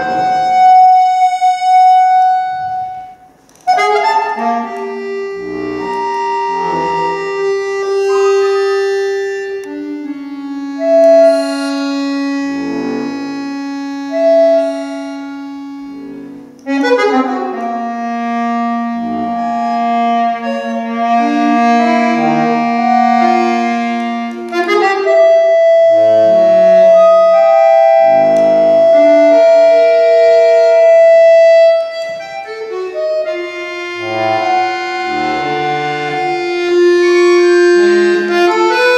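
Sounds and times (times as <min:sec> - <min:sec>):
solo accordion: 0:00.0 - 0:38.9.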